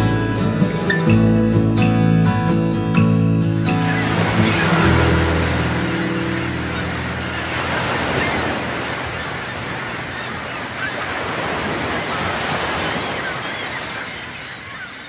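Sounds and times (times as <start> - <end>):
waves breaking on beach: 3.7 - 15.0.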